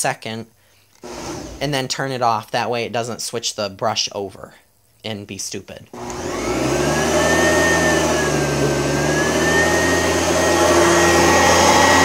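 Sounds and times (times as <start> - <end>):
vacuum cleaner motor whining: 1.0 - 1.6, 6.0 - 12.0.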